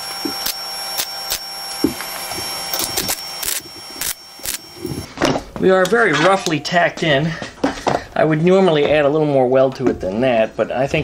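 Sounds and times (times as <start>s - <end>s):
welder arc crackling: 0.0s - 5.1s
welding spatter pops: 0.0s - 5.1s.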